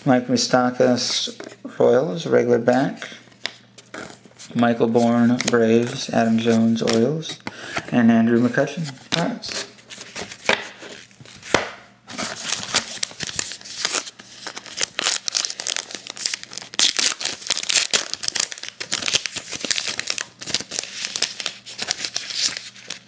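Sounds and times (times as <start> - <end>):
card wrapper crinkling: 9.1 - 23.0.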